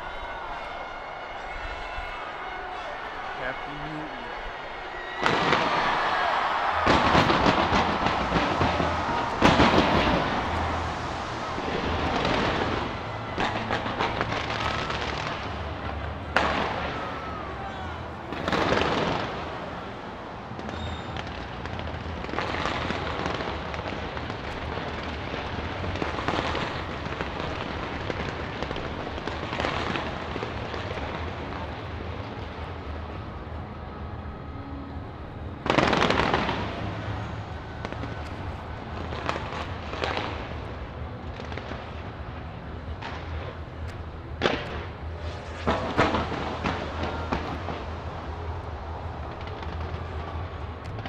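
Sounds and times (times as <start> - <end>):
fireworks crackling: 0.0 - 33.6, 35.5 - 51.0
sharp firework bang: 5.2 - 15.2.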